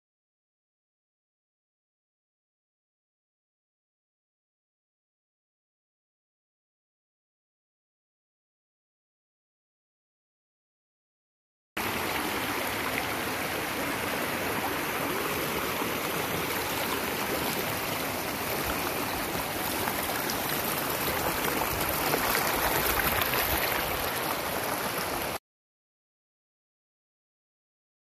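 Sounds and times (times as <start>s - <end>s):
creek water rushing over rocks: 11.8s - 25.4s.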